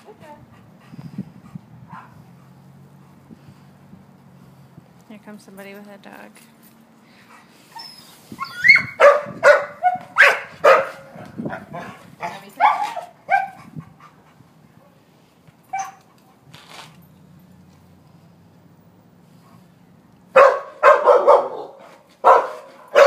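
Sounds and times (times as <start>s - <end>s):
dog barking: 1.9s - 2.2s, 8.7s - 13.7s, 20.3s - 23.0s.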